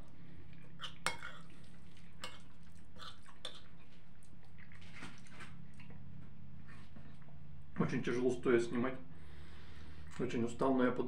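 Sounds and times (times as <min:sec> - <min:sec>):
steady low hum: 0:00.0 - 0:11.0
quiet chewing: 0:00.4 - 0:07.4
fork clinking on ceramic plate: 0:00.8 - 0:01.4.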